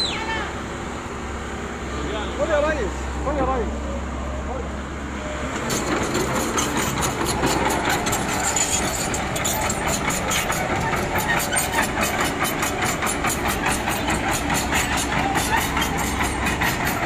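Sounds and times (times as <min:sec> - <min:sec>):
excavator diesel engine running: 0:00.0 - 0:17.0
hydraulic breaker hammering concrete: 0:05.8 - 0:17.0.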